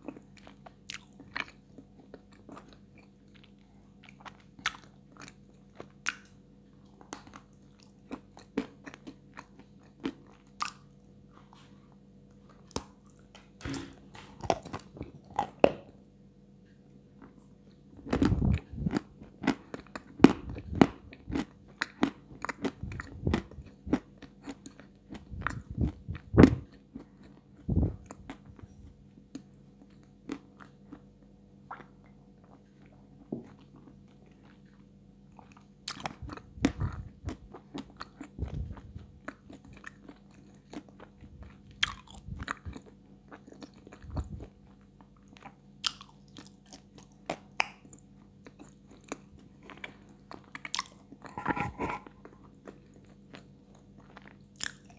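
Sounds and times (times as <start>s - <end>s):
crunching and chewing: 0.0s - 16.0s, 17.2s - 54.9s.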